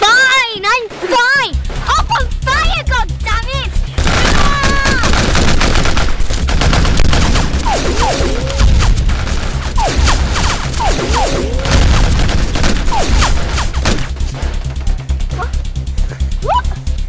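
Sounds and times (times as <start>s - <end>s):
machine-gun fire: 4.0s - 14.9s
falling whistles of ricochets: 9.8s - 11.8s.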